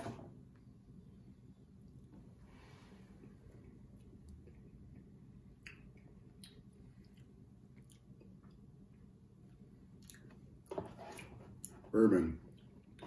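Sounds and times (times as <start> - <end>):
low room hum: 0.0 - 13.0
faint chewing of cookie: 0.5 - 13.0.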